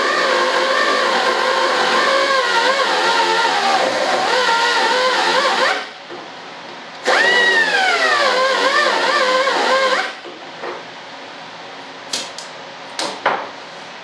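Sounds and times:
power tool whine: 0:00.0 - 0:05.9, 0:07.0 - 0:10.2.

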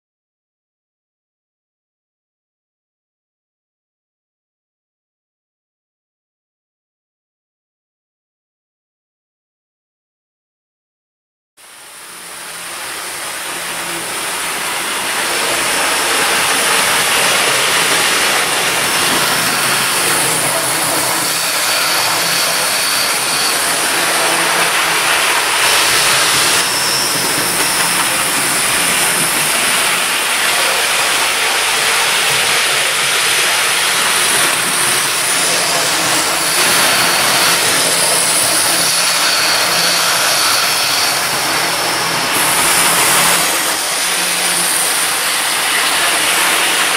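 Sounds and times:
train rumbling: 0:11.7 - 0:46.9.

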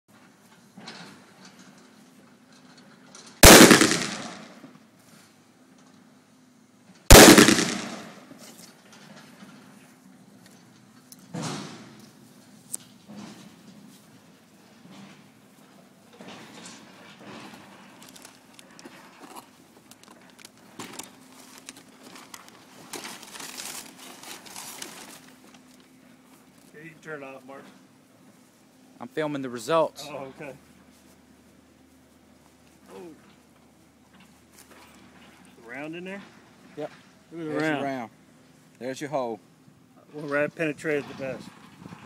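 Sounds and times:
pistol shots: 0:03.4 - 0:04.6, 0:07.1 - 0:08.3
sharp crackles: 0:03.4 - 0:04.7, 0:07.1 - 0:08.6
paper target and vest rustling: 0:20.8 - 0:25.8.

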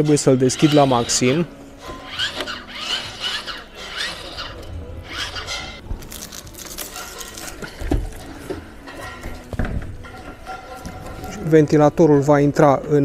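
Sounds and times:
roof vent lid squealing: 0:00.0 - 0:05.8.

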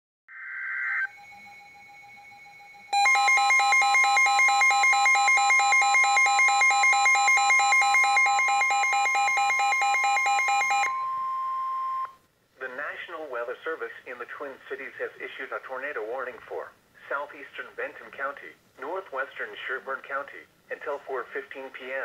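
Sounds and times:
warbling alarm beep: 0:00.3 - 0:12.2
steady alarm tone: 0:00.9 - 0:12.2.

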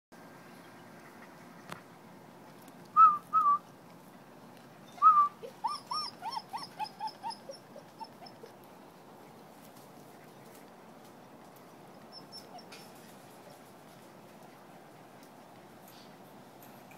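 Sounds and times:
puppy whining and whimpering: 0:04.9 - 0:08.6, 0:12.1 - 0:13.0.

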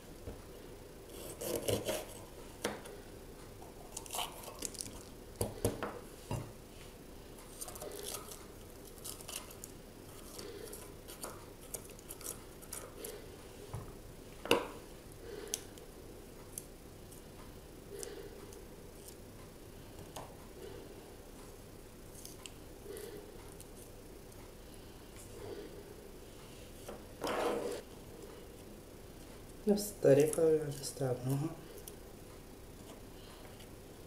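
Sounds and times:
knife cutting peppers: 0:01.1 - 0:02.9.

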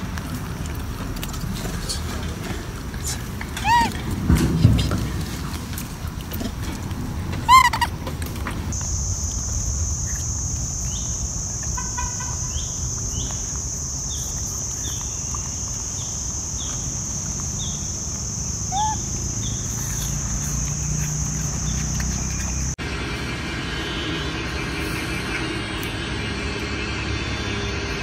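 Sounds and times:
insects droning: 0:00.0 - 0:28.0
bird chirping: 0:03.6 - 0:04.0, 0:07.5 - 0:07.9, 0:10.0 - 0:22.8
short arched bird call: 0:18.7 - 0:19.1.

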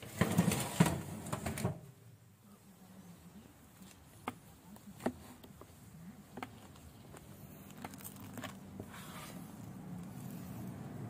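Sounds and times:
roasted chicken skin crackling: 0:06.4 - 0:10.8.

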